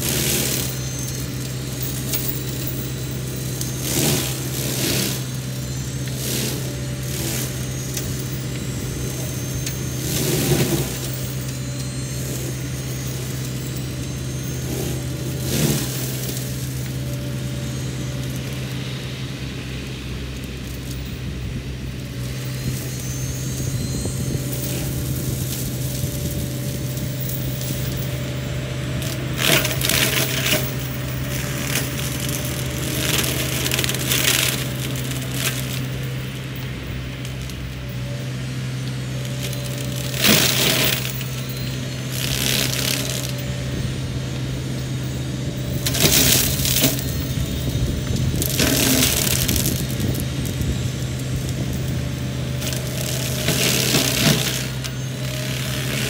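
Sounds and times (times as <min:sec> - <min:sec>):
excavator engine under load: 0:00.0 - 0:56.0
mulcher shredding brush and wood: 0:00.0 - 0:56.0
wood cracking and crunching: 0:22.6 - 0:37.8, 0:39.2 - 0:44.5, 0:45.1 - 0:56.0.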